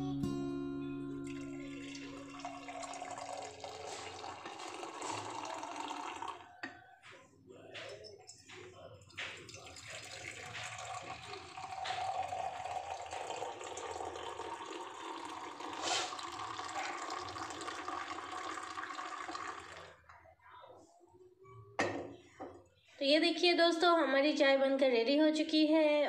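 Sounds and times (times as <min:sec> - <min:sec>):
tea pouring into mug: 0:01.3 - 0:06.8, 0:09.1 - 0:20.1.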